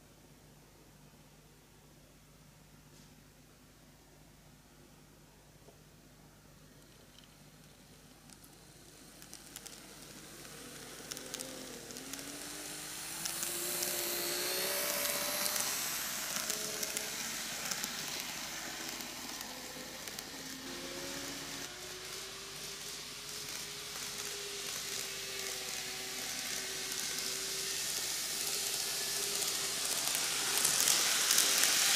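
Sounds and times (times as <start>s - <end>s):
wheels clicking on track: 6.8s - 31.9s
model train motor whine: 8.3s - 31.9s.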